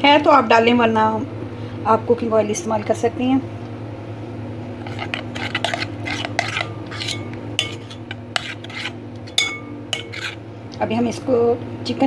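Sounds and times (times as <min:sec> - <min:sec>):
spoon scraping glass bowl: 0:04.8 - 0:10.4.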